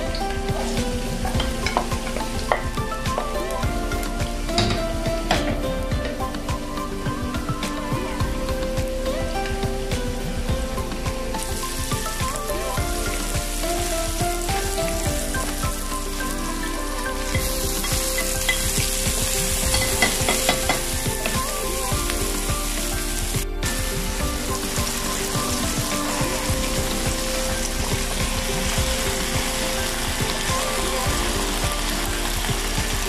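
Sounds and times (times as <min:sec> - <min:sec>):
onion sizzling in hot oil: 0:00.0 - 0:08.4, 0:09.1 - 0:33.0.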